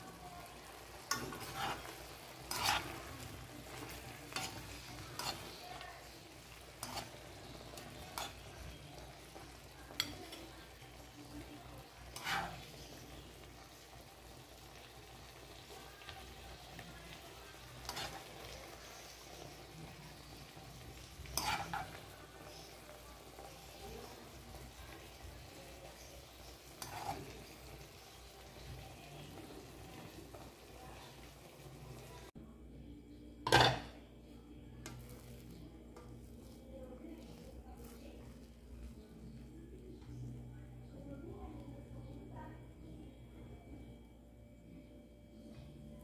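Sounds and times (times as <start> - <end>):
vegetables sizzling in a wok: 0.0 - 32.4, 34.8 - 39.4
spoon clinking and scraping pan: 0.6 - 10.8, 12.0 - 13.0, 17.7 - 22.8, 26.0 - 27.9, 33.5 - 34.0.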